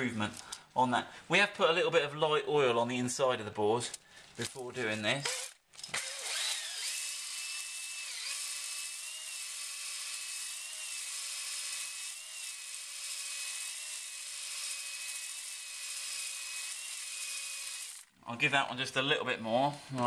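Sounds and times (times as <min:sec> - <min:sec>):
drill motor whine: 0:05.2 - 0:18.0.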